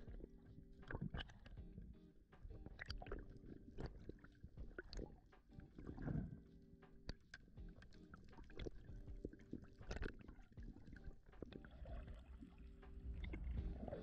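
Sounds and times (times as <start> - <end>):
water bubbling underwater: 2.6 - 6.4, 7.1 - 14.0
low steady hum: 11.6 - 14.0.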